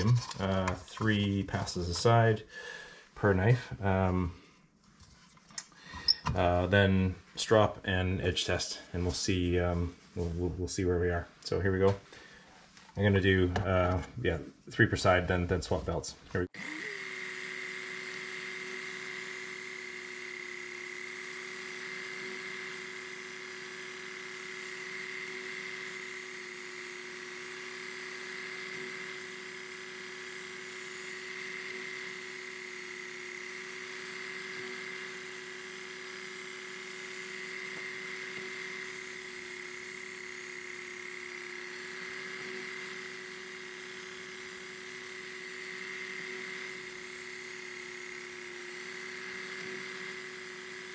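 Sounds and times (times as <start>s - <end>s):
belt sharpener motor whine: 16.5s - 50.9s.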